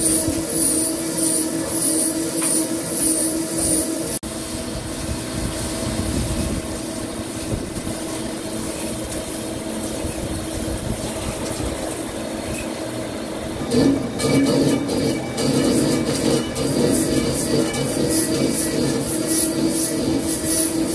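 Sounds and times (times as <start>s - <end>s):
lathe machining metal: 0.0s - 4.2s, 6.6s - 20.9s
coolant spraying: 13.5s - 20.9s.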